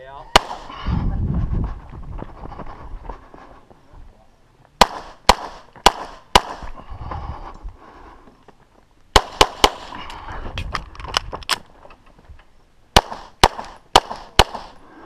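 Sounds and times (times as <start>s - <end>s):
pistol shots: 0.3s - 0.8s, 4.8s - 6.7s, 9.1s - 10.0s, 13.0s - 14.8s.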